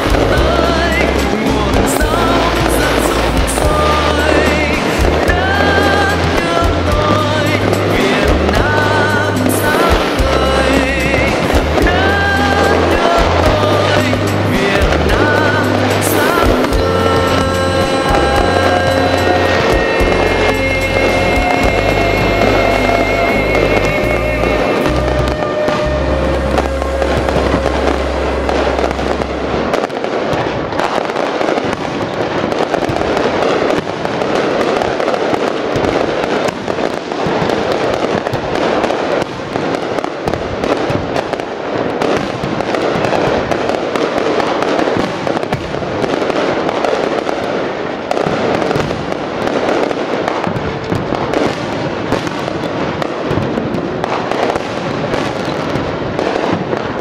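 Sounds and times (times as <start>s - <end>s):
music with low bass note: 0.0s - 30.1s
fireworks crackling and popping: 0.0s - 57.0s.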